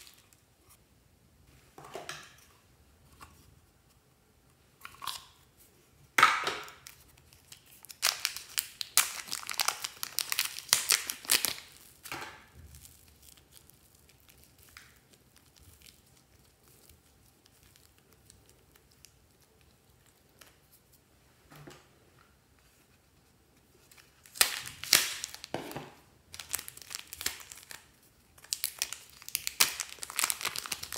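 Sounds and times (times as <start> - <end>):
plastic packet crinkling and tearing: 6.6 - 20.6, 23.9 - 25.6, 26.3 - 30.9.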